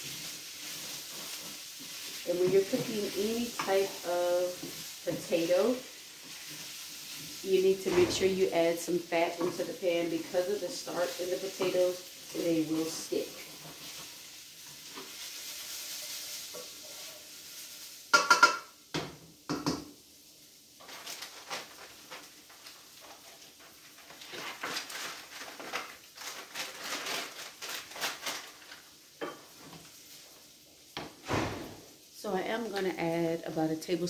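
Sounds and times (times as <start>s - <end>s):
potatoes sizzling in pan: 0.0s - 34.0s
kitchen things clattering: 7.4s - 14.2s, 18.1s - 19.9s, 20.8s - 29.9s
utensil knocking against pan: 18.1s - 18.7s.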